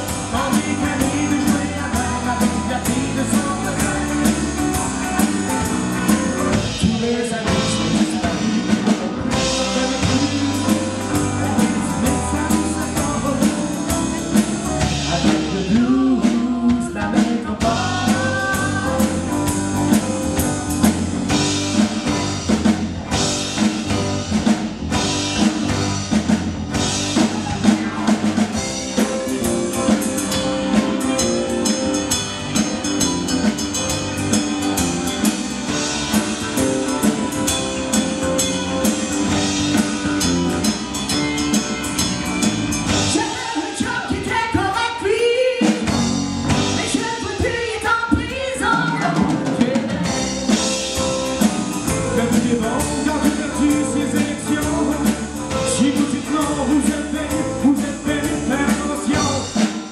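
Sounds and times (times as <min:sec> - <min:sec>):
woman singing lead: 0:00.0 - 0:19.8, 0:43.1 - 0:46.0, 0:46.6 - 0:50.9
electric bass: 0:00.0 - 0:43.4, 0:45.8 - 0:47.2, 0:48.6 - 0:59.9
electric guitar: 0:00.0 - 0:44.4
drum kit: 0:00.0 - 0:59.9.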